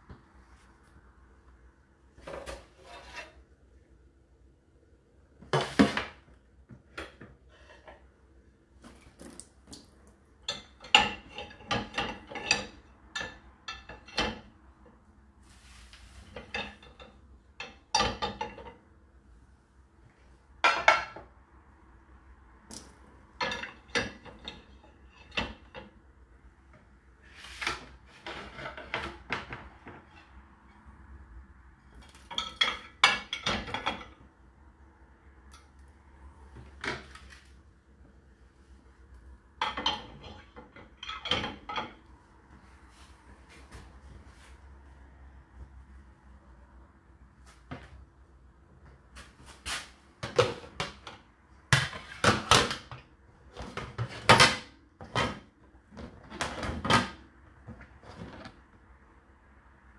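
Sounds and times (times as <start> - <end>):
dishes clattering into rack: 10.5 - 14.5, 16.4 - 18.8, 32.3 - 34.1, 39.6 - 42.0.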